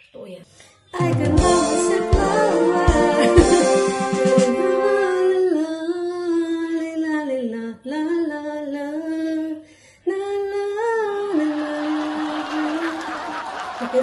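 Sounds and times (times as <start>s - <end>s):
woman singing slow melody: 0.9s - 13.1s.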